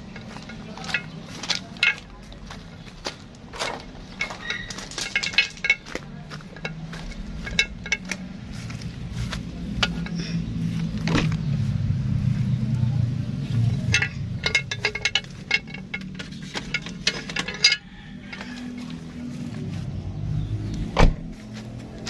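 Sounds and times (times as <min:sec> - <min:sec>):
metal tools clinking: 0:00.0 - 0:11.4, 0:13.5 - 0:19.1.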